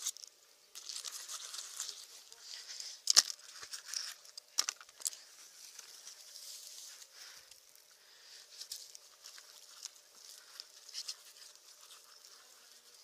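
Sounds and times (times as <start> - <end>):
rope and gear rustling in grass: 5.2 - 13.0.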